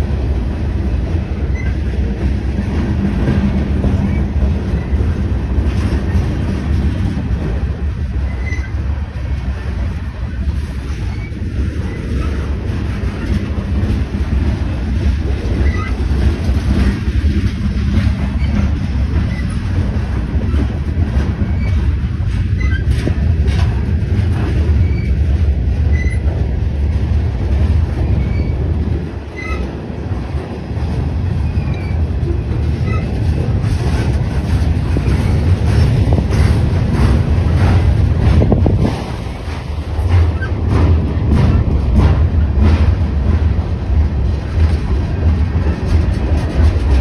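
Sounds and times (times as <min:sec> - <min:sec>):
freight train rumbling past: 0:00.0 - 0:47.0
high wheel squeals: 0:08.3 - 0:08.8.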